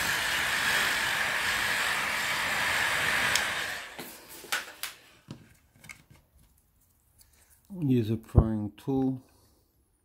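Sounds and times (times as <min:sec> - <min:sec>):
hot-air blower hissing and whining: 0:00.0 - 0:05.0.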